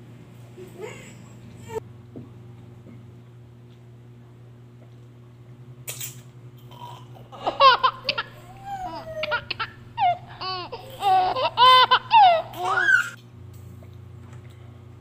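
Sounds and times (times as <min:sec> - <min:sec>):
steady low hum: 0:00.0 - 0:15.0
baby laughing: 0:07.4 - 0:13.2.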